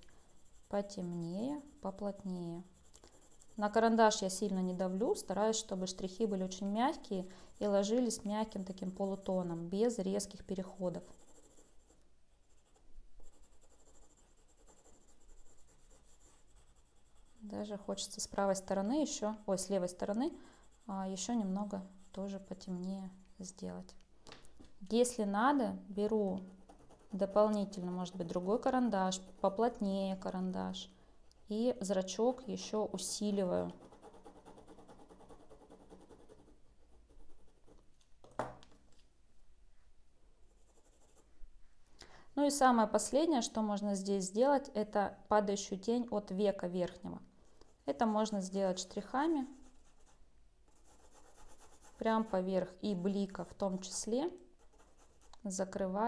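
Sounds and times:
pencil scratching on paper: 0:00.0 - 0:17.9, 0:18.6 - 0:23.4, 0:26.3 - 0:30.3, 0:33.1 - 0:37.8, 0:40.5 - 0:41.3, 0:47.4 - 0:55.4
pencil set down on wood: 0:38.2 - 0:38.8.

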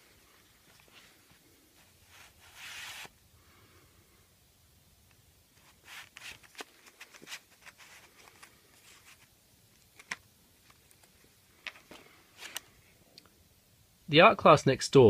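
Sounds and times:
paper rustling: 0:00.6 - 0:03.1, 0:05.6 - 0:09.3.

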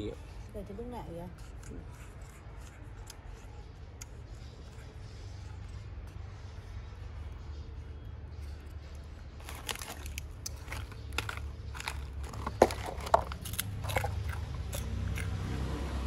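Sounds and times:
plastic snack bag crinkling: 0:09.4 - 0:14.9.

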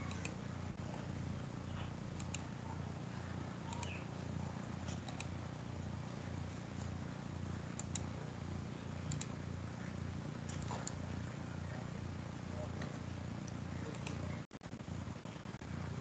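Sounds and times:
computer mouse clicks: 0:00.0 - 0:00.4, 0:02.1 - 0:02.5, 0:03.7 - 0:04.0, 0:04.8 - 0:05.4, 0:07.7 - 0:08.1, 0:09.1 - 0:09.4, 0:10.4 - 0:11.0, 0:13.4 - 0:14.3
low hum: 0:00.0 - 0:16.0.

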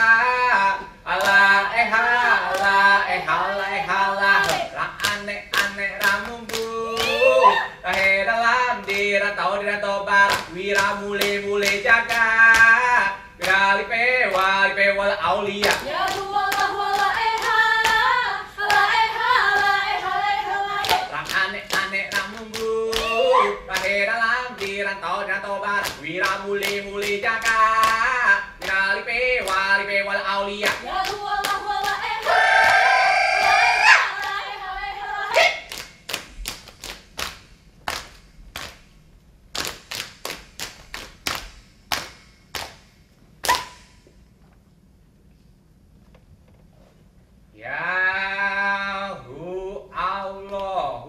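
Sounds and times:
group singing a chant: 0:00.0 - 0:35.7
hand claps: 0:01.1 - 0:01.4, 0:02.4 - 0:02.8, 0:04.4 - 0:08.2, 0:08.8 - 0:09.1, 0:10.2 - 0:12.8, 0:13.4 - 0:13.7, 0:14.3 - 0:14.6, 0:15.6 - 0:18.1, 0:20.8 - 0:24.8, 0:25.8 - 0:28.8, 0:29.4 - 0:29.7, 0:30.6 - 0:32.8, 0:35.3 - 0:44.1
group chanting: 0:01.1 - 0:04.9, 0:06.5 - 0:07.8, 0:15.5 - 0:21.2, 0:22.6 - 0:23.9, 0:30.4 - 0:35.7.

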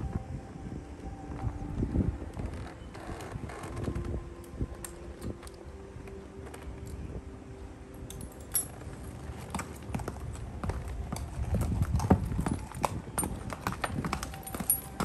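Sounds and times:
horse hooves clopping on concrete: 0:08.0 - 0:15.0.

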